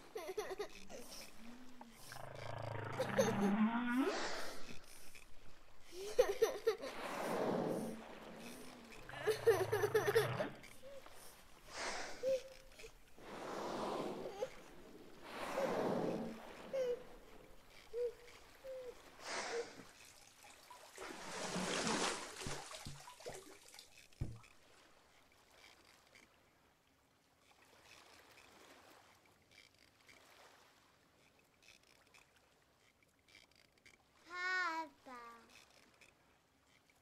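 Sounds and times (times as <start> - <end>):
rushing splashing water: 18.4 - 24.8.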